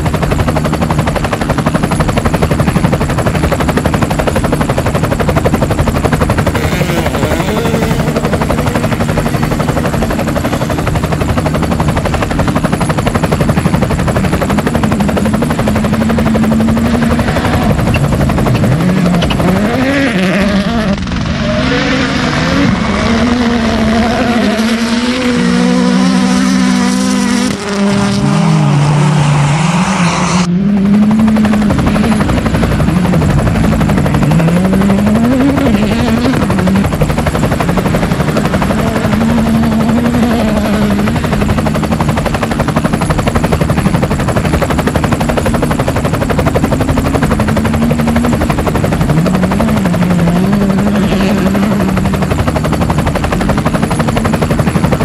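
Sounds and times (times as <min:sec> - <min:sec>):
helicopter rotor and engine: 0:00.0 - 0:55.0
car engine revving through gears: 0:18.5 - 0:32.2.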